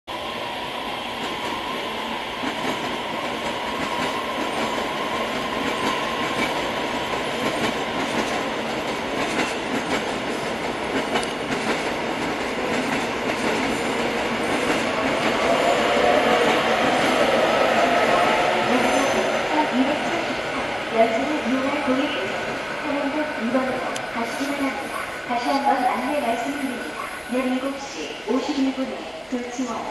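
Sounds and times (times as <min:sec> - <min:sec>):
rising train whine: 0:00.1 - 0:29.9
train wheels clicking over rail joints: 0:05.3 - 0:15.3.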